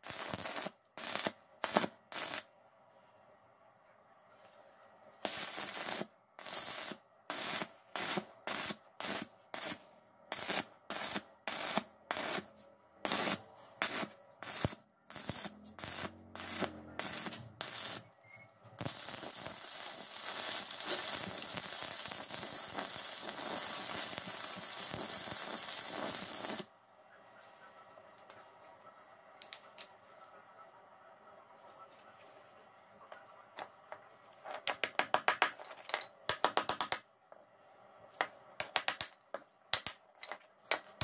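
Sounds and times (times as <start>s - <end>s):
welding arc crackling: 0.0s - 2.5s, 5.2s - 12.5s, 13.1s - 18.2s, 18.8s - 26.7s.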